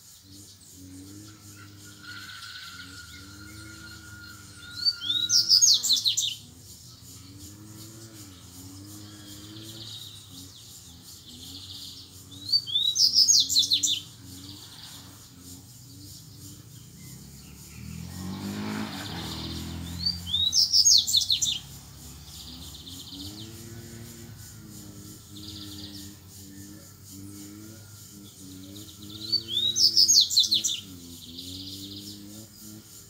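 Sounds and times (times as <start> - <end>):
bird singing high chirps: 0.0 - 33.0.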